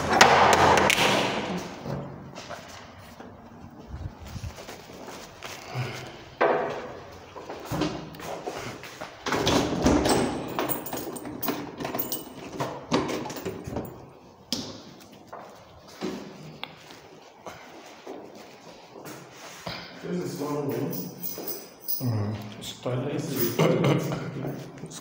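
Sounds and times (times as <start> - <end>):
keys and lock rattling: 9.9 - 14.1, 20.4 - 22.4, 23.3 - 24.7.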